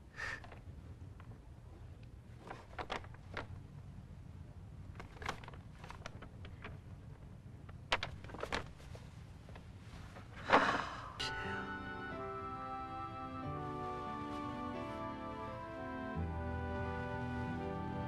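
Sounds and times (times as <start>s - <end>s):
low steady hum: 0.0s - 18.0s
doll being handled: 2.3s - 3.7s, 4.9s - 10.8s.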